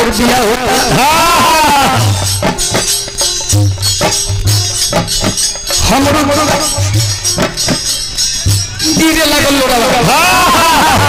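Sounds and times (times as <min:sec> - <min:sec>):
jingling percussion: 0:00.0 - 0:11.0
pitched melodic line: 0:00.0 - 0:11.0
deep drum beating: 0:00.5 - 0:11.0.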